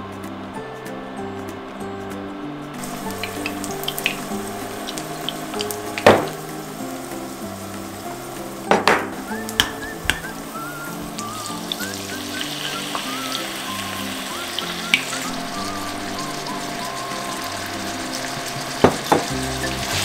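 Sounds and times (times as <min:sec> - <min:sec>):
soft background music: 0:00.0 - 0:20.0
sharp popping noises: 0:02.8 - 0:07.3, 0:08.1 - 0:19.7
garlic sizzling in oil: 0:02.8 - 0:20.0.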